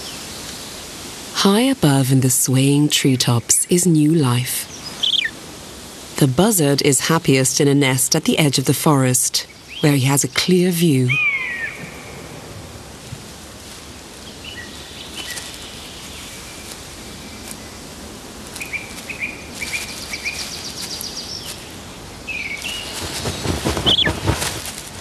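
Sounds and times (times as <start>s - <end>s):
steady background hiss: 0.0s - 25.0s
small birds chirping: 3.2s - 5.4s, 9.3s - 12.3s, 14.2s - 24.6s
rustling: 11.8s - 25.0s.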